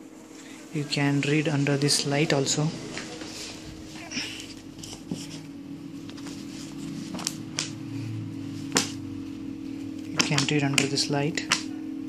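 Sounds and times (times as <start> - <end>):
steady low hum: 0.0 - 12.0
paper pages rustling: 2.8 - 7.8.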